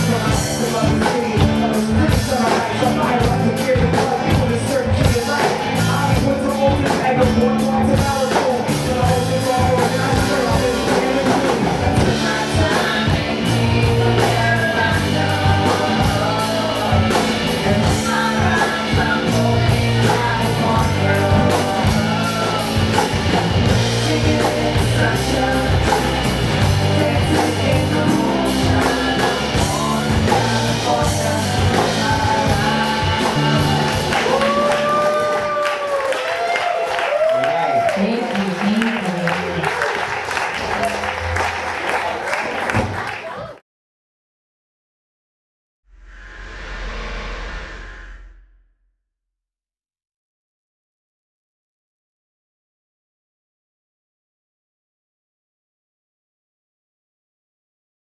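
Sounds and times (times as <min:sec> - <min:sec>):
drum kit beat: 0:00.0 - 0:36.0
live rock band playing: 0:00.0 - 0:36.2
person singing: 0:00.0 - 0:36.4.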